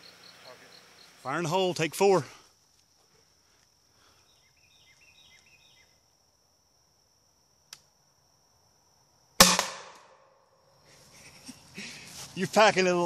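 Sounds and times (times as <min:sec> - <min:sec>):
rocket launcher bang: 0:09.4 - 0:10.2.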